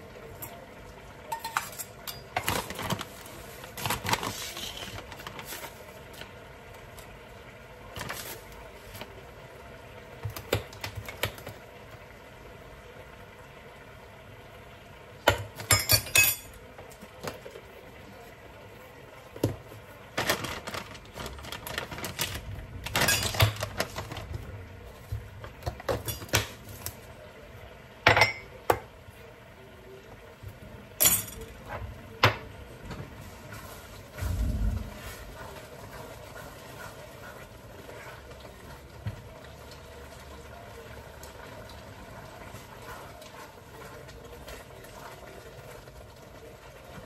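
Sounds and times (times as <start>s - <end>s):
metal utensils clinking: 1.3s - 3.1s, 15.3s - 16.6s, 22.8s - 24.2s, 25.6s - 26.9s, 31.0s - 31.7s.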